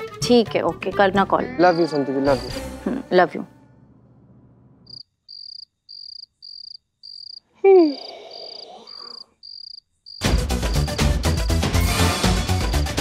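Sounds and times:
crickets chirping: 4.8 - 11.6
man yawning: 7.6 - 9.2
loud music: 10.2 - 13.0.

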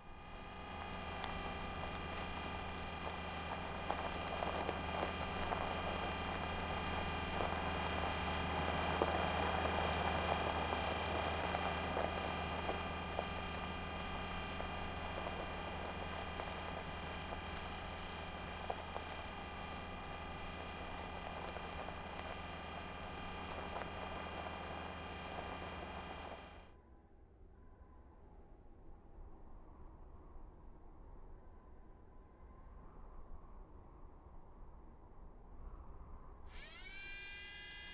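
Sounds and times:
motor hum: 0.0 - 26.7, 36.5 - 37.9
wheels crackling over gravel: 0.0 - 26.7.

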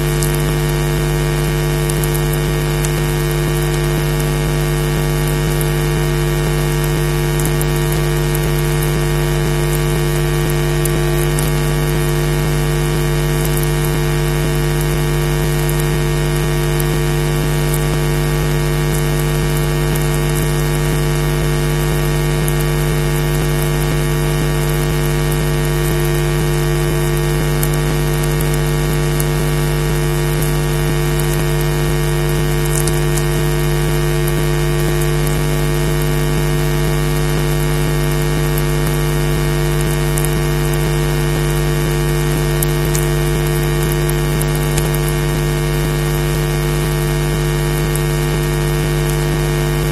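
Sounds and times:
electrical hum: 0.0 - 49.9
faint clicks: 32.7 - 33.3.

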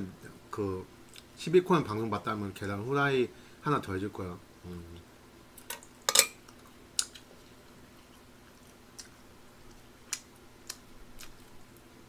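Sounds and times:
faint steady hum: 0.0 - 12.0
chewing: 6.5 - 11.9.

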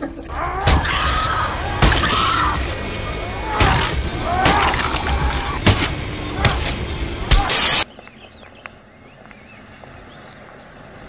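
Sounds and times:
horror music bed: 0.0 - 7.8
heavy horror music hits: 0.2 - 7.8
wailing tones: 0.2 - 7.8.

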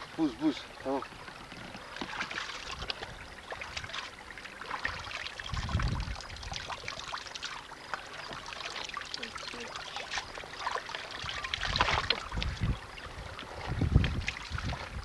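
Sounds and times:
water trickling and splashing: 0.0 - 15.0
hands scooping water: 0.1 - 15.0.

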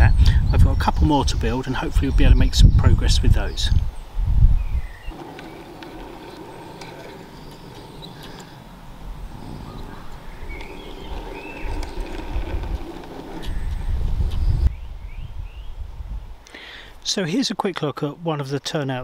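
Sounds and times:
birds chirping: 0.0 - 15.9
wind rumble on microphone: 0.0 - 16.4
model wagons rolling on track: 5.1 - 14.1.

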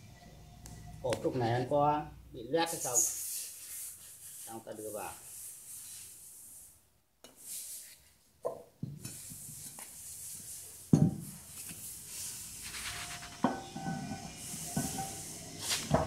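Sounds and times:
metal clanks and knocks: 13.4 - 15.2.

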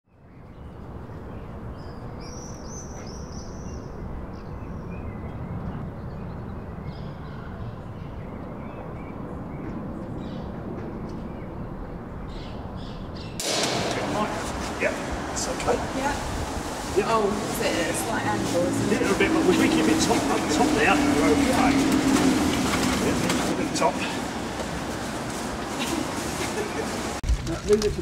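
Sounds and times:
small birds chirping: 0.1 - 13.4
loud noisy sound: 13.4 - 24.4
low outdoor rumble: 13.4 - 28.0.

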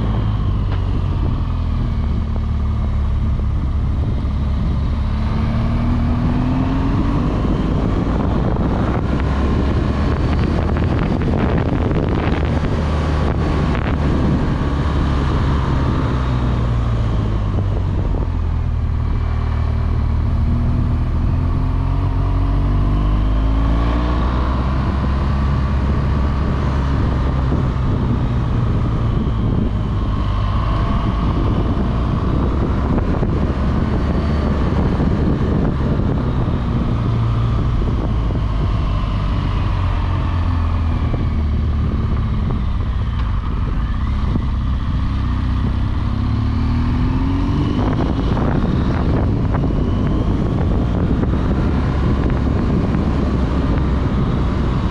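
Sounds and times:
motorcycle engine running: 0.0 - 54.9
wind noise on microphone: 0.0 - 54.9.

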